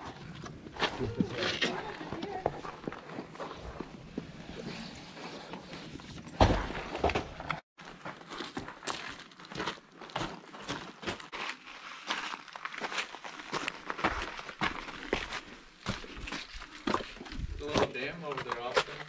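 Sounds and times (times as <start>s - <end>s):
footsteps crunching on gravel: 7.8s - 19.0s.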